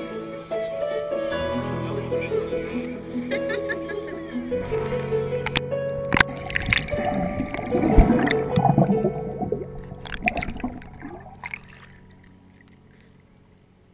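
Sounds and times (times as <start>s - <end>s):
water gurgling and splashing: 6.1s - 12.8s.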